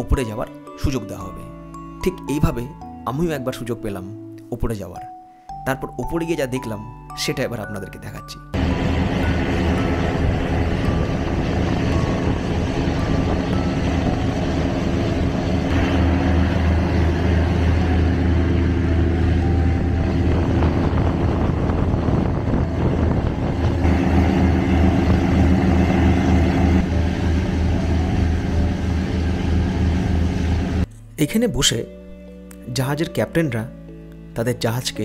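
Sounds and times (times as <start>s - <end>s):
boat engine droning: 8.6s - 30.9s
wake rushing along hull: 8.6s - 30.9s.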